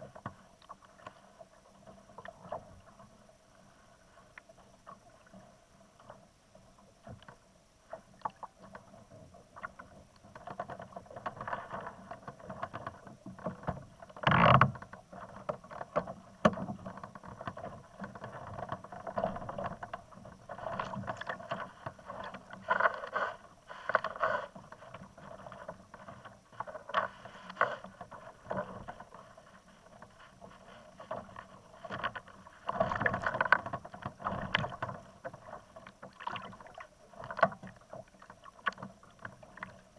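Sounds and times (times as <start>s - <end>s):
water splashing against kayak hull: 0.0s - 39.9s
small clicks and knocks: 9.6s - 20.0s, 37.2s - 39.8s.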